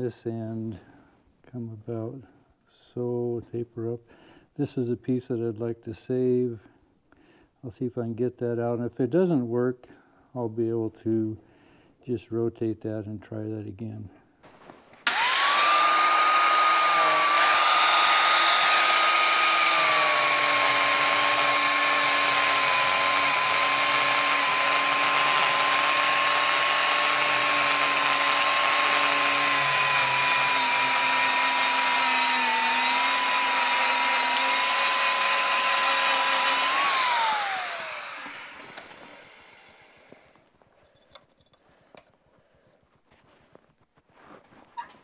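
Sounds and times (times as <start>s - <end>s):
angle grinder cutting metal: 15.1s - 40.2s.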